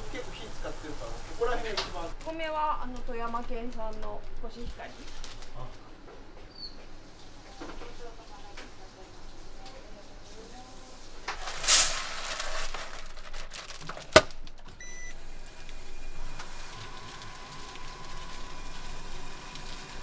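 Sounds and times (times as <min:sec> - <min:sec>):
brief rustling hiss: 0:11.3 - 0:12.8
machine humming and whining: 0:14.8 - 0:20.0.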